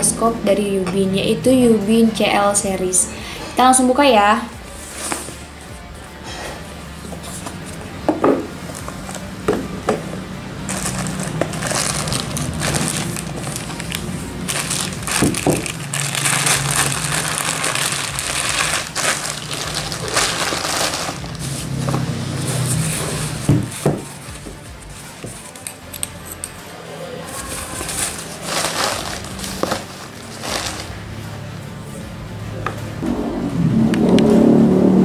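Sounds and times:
plastic wrap crinkling: 0:10.7 - 0:23.5, 0:27.3 - 0:31.0.

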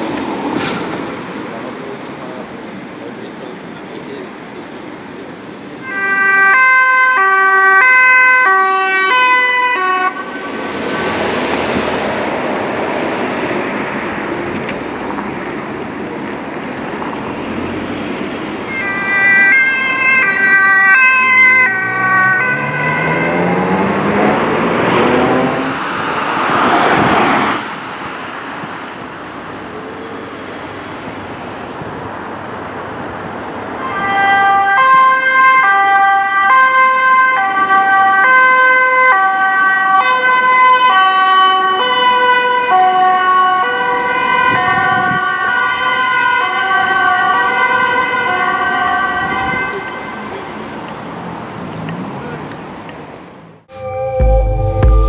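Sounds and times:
road traffic: 0:00.0 - 0:55.0
two-tone sirens: 0:04.9 - 0:12.2, 0:17.0 - 0:27.8, 0:33.7 - 0:50.9, 0:53.7 - 0:55.0.

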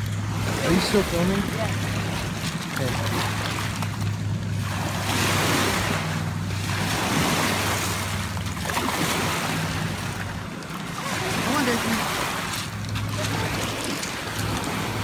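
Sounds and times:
waves washing over gravel: 0:04.7 - 0:15.0.

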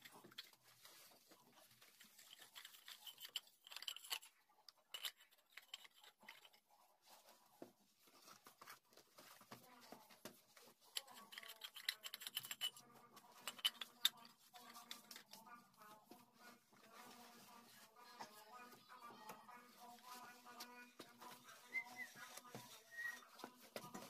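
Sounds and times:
die scraping pipe thread: 0:01.8 - 0:06.6, 0:10.9 - 0:15.4.

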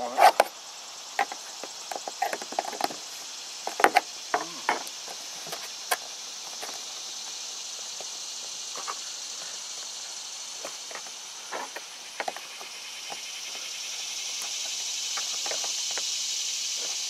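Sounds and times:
high-pitched insect buzz: 0:00.0 - 0:17.0.

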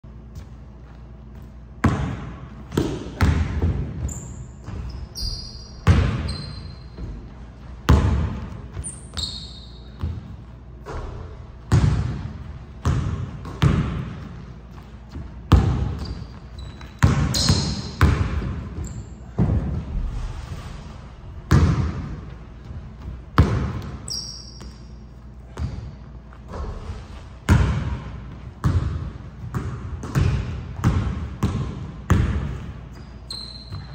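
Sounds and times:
sneakers squeaking: 0:00.1 - 0:20.0, 0:20.9 - 0:33.9
basketball bouncing on wooden floor: 0:01.8 - 0:05.2, 0:05.8 - 0:19.8, 0:21.5 - 0:24.8, 0:27.5 - 0:32.7.

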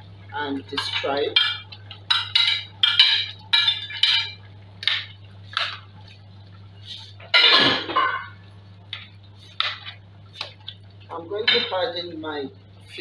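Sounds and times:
spoon clattering: 0:00.8 - 0:05.8.

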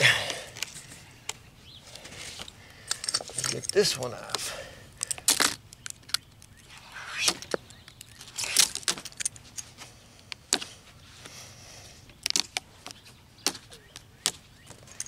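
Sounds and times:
plastic tabs snapping: 0:05.0 - 0:06.6.

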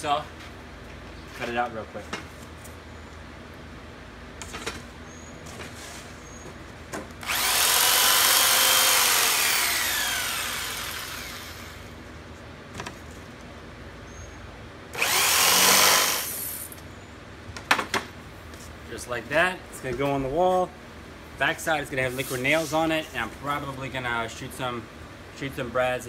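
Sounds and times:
jigsaw cutting plywood: 0:07.2 - 0:11.8, 0:15.0 - 0:16.5.

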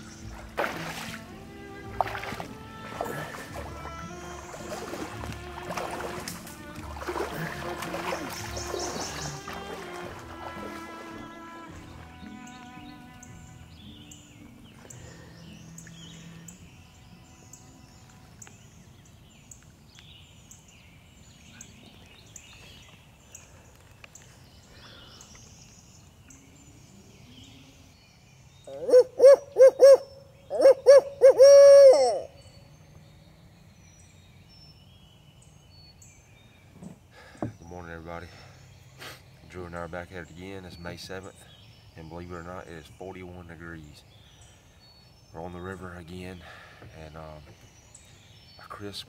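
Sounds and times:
songbirds chirping faintly: 0:00.0 - 0:49.0
owl hooting call: 0:28.7 - 0:32.4.

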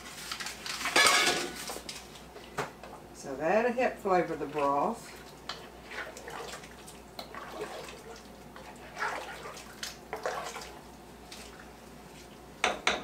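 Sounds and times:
spoon stirring sloshing liquid: 0:04.1 - 0:12.6
spoon knocking against pot: 0:12.6 - 0:13.0.

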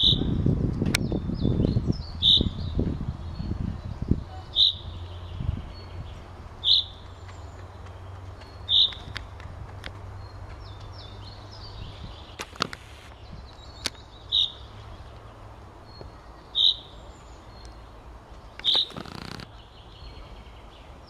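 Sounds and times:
high notes of other birds: 0:01.0 - 0:09.1, 0:10.2 - 0:21.0
chaffinch calling: 0:01.7 - 0:02.8, 0:04.0 - 0:06.0, 0:06.6 - 0:07.0, 0:08.5 - 0:09.1, 0:10.7 - 0:14.8, 0:15.9 - 0:17.8, 0:18.5 - 0:20.2.

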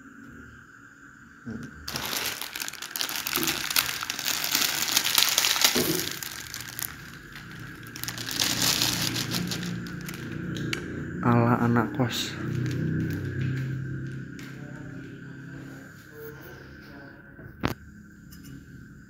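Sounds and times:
plastic packet crinkling: 0:01.9 - 0:10.7, 0:12.4 - 0:13.7.

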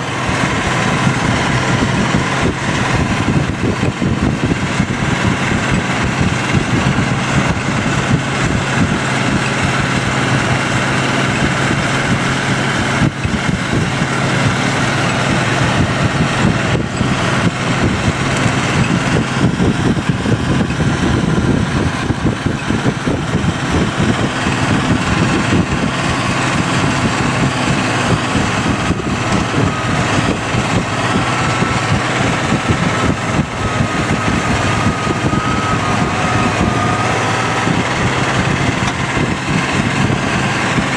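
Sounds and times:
tractor diesel engine under load: 0:00.0 - 0:40.9.

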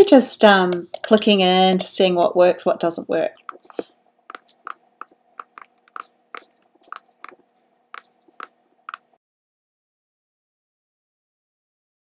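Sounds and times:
faint steady hum: 0:00.0 - 0:09.2
computer mouse clicks: 0:00.7 - 0:01.9, 0:03.4 - 0:09.2.

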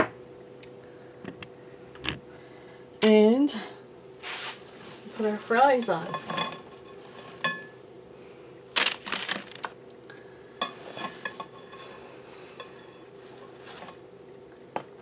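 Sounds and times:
fried potatoes rustling and clattering: 0:04.2 - 0:07.7, 0:08.7 - 0:09.8, 0:12.7 - 0:14.0.

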